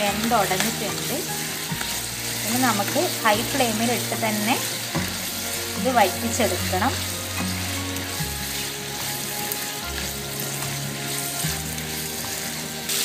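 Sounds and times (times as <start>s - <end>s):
food sizzling in a pan: 0.0s - 13.0s
spatula stirring in a pan: 0.0s - 13.0s.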